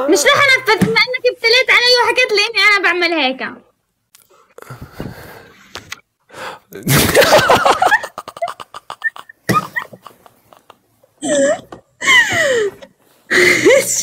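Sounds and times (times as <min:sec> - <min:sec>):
people laughing hard: 0:07.0 - 0:10.8.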